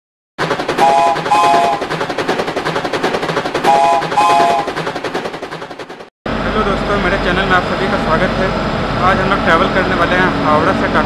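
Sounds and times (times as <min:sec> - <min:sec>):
fast rattle of clicks: 0:00.4 - 0:06.1.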